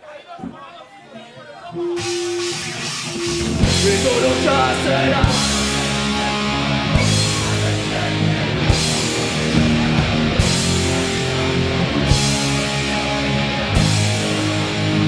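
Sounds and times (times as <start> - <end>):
live metal band playing: 1.8 - 15.0.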